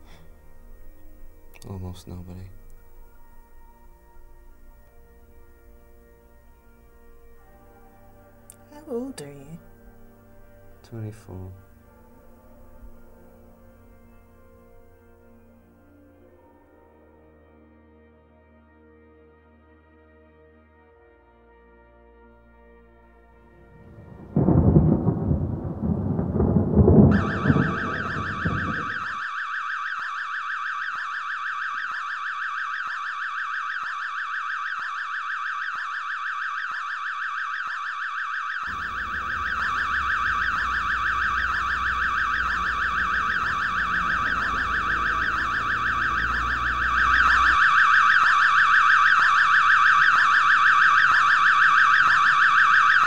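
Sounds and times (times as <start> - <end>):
loud low rumble: 23.4 - 29.1
shrill electronic alarm tone: 23.9 - 53.0.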